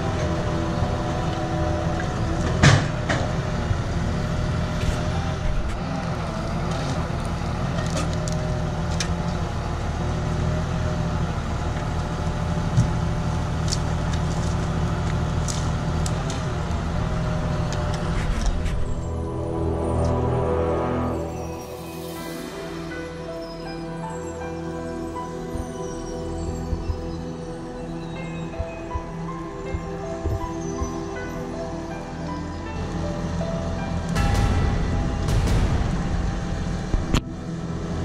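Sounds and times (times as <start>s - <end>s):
tractor engine running: 0.0s - 38.0s
sharp knock: 34.2s - 37.3s.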